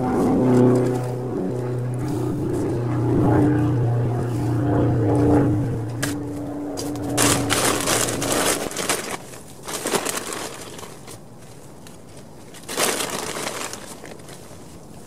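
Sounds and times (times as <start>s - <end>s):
low motor hum: 0.0s - 11.0s
rustling and crunching of foliage: 4.2s - 15.0s.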